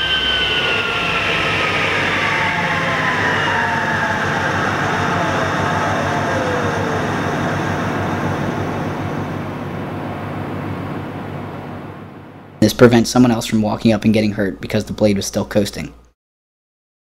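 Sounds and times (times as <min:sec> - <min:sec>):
table saw blade whine winding down: 0:00.0 - 0:10.7.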